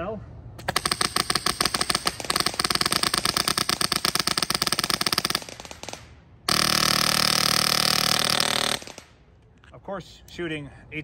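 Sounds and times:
airsoft rifle full-auto firing: 0.6 - 9.2.

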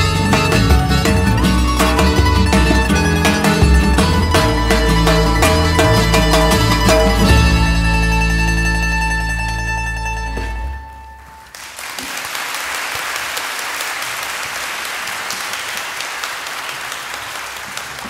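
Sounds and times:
audience applause: 11.5 - 18.0.

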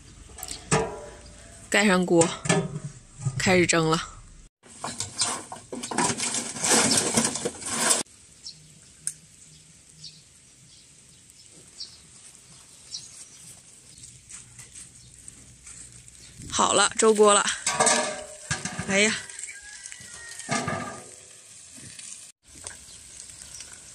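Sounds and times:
stove fire stoked rustling crackling: 4.6 - 8.1, 11.3 - 23.9.

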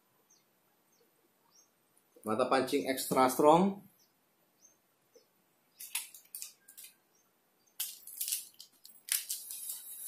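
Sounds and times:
plastic packaging rustling and clicking: 5.8 - 7.0, 7.8 - 10.0.

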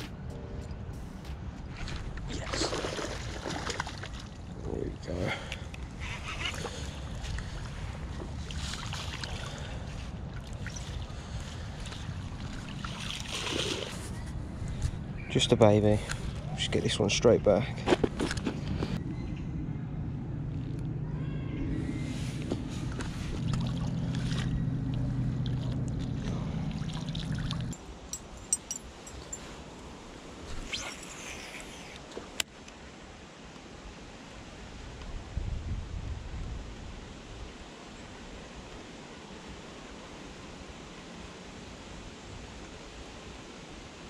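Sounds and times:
faint water splashing: 1.7 - 5.7, 6.5 - 15.0, 21.3 - 27.8
low mechanical hum: 13.5 - 29.4.

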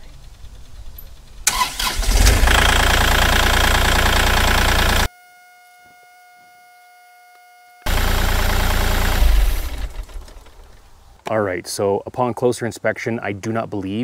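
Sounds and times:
diesel engine starting and idling: 1.4 - 5.1, 7.9 - 10.9.

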